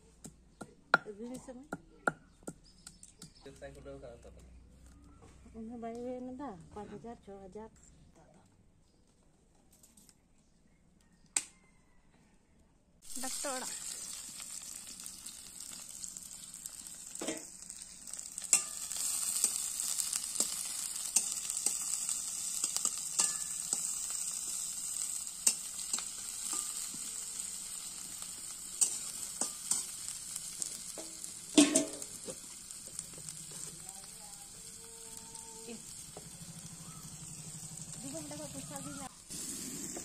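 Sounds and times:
onions sizzling in hot oil: 0:13.0 - 0:40.0.

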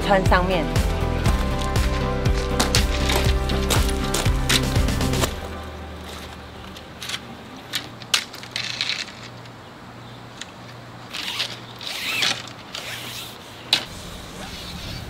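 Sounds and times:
tent fabric rustling: 0:11.1 - 0:15.0.

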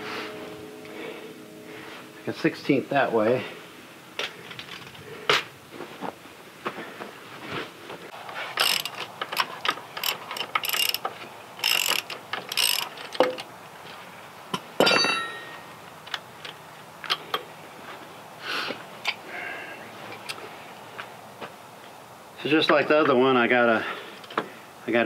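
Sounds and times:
loud ringing metal clank: 0:00.0 - 0:03.9, 0:14.8 - 0:15.7
metal clicking and clanking: 0:08.5 - 0:13.5.

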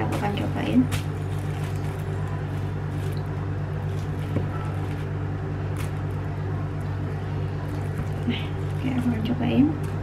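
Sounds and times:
low mechanical hum: 0:00.0 - 0:10.0.

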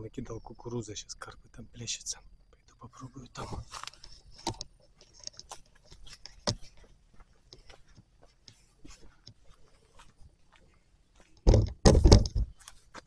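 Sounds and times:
light clicks and rustling: 0:03.4 - 0:10.1
sharp knocks: 0:11.4 - 0:12.5.

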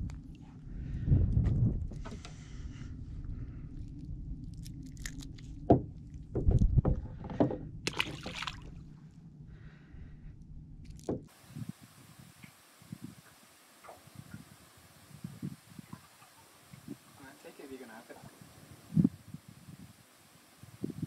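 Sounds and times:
low boat rumble: 0:00.0 - 0:20.0
knocks and clatters on boat: 0:05.7 - 0:08.5
hiss: 0:11.3 - 0:21.0.

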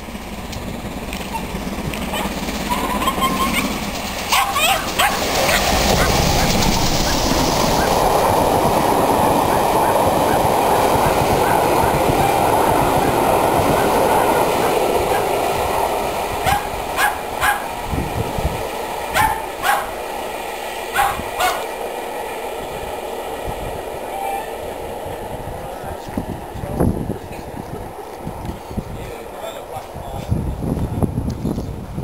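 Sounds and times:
train rumbling past: 0:00.0 - 0:32.0
small dog yapping: 0:02.1 - 0:03.7, 0:04.3 - 0:06.2, 0:16.4 - 0:17.7, 0:19.2 - 0:20.0, 0:21.0 - 0:21.7.

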